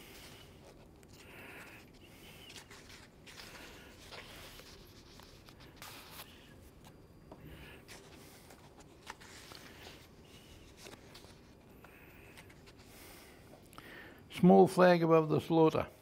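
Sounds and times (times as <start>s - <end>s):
book pages rustling: 0.0s - 7.0s, 7.8s - 13.2s.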